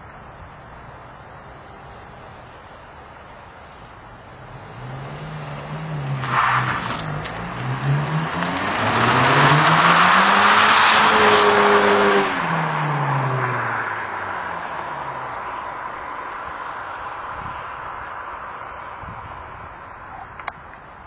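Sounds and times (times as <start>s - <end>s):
car accelerating hard past: 4.5s - 16.8s.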